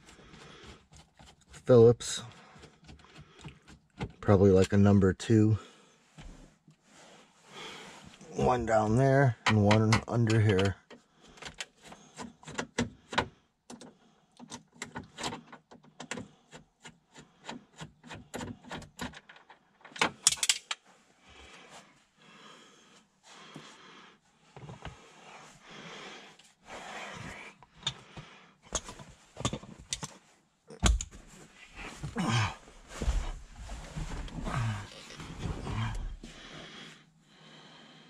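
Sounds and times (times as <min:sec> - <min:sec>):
screws clicking and rattling: 0:18.3 - 0:20.8.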